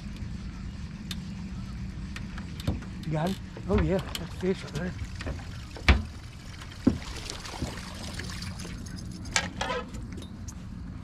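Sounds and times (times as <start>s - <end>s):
steady low hum: 0.0s - 11.0s
knocks on metal boat: 5.3s - 6.2s, 6.8s - 7.1s.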